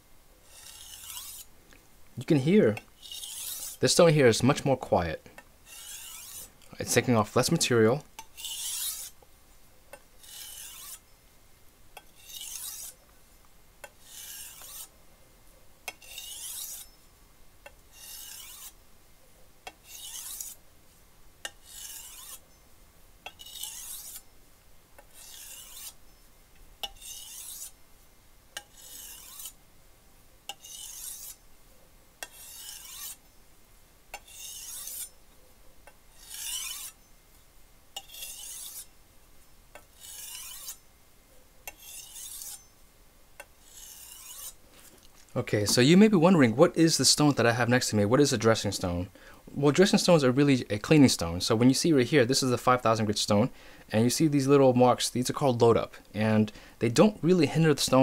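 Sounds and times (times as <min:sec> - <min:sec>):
knife scraping on whetstone: 0:00.4 - 0:01.5, 0:03.0 - 0:03.8, 0:05.7 - 0:07.1, 0:08.2 - 0:09.2, 0:10.2 - 0:11.0, 0:12.0 - 0:13.0, 0:13.8 - 0:14.9, 0:15.9 - 0:17.0, 0:17.9 - 0:18.8, 0:19.8 - 0:20.6, 0:21.4 - 0:22.4, 0:23.3 - 0:24.3, 0:25.0 - 0:26.0, 0:26.8 - 0:27.8, 0:28.6 - 0:29.6, 0:30.5 - 0:31.4, 0:32.2 - 0:33.2, 0:34.2 - 0:35.2, 0:36.1 - 0:37.0, 0:38.0 - 0:38.9, 0:39.8 - 0:40.8, 0:41.7 - 0:42.7, 0:43.6 - 0:45.0.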